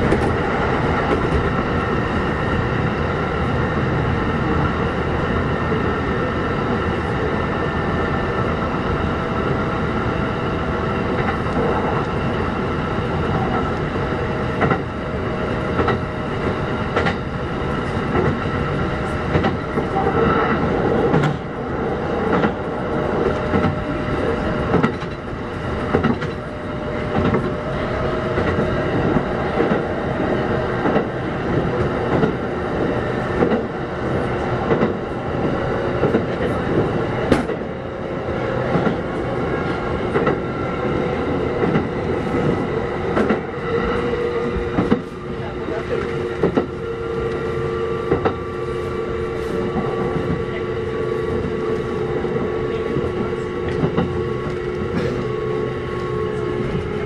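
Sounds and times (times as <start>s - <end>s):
rail-joint clacks: 0.0s - 1.9s, 13.2s - 48.5s, 49.3s - 57.0s
electric train rumble and whine: 0.0s - 57.0s.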